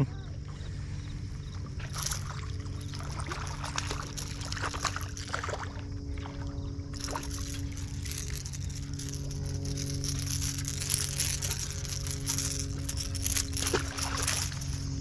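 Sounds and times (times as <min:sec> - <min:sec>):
motorboat engine humming: 0:00.0 - 0:15.0
water splashing and lapping: 0:00.0 - 0:15.0.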